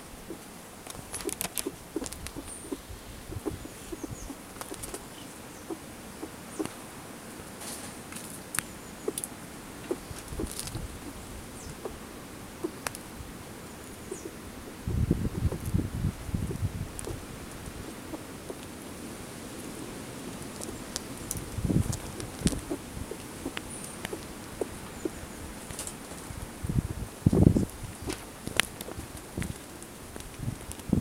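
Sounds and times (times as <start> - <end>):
squirrel claws scrabbling on cloth: 0.3 - 5.1, 7.6 - 11.2, 19.5 - 26.4.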